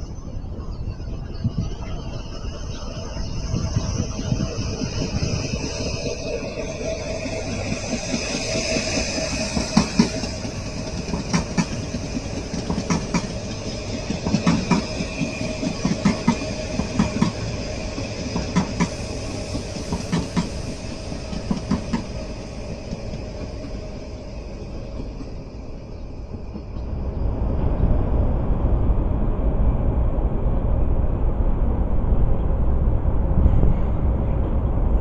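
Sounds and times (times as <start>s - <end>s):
train rumble and whine: 0.0s - 35.0s
train wheels clicking over joints: 5.1s - 26.8s.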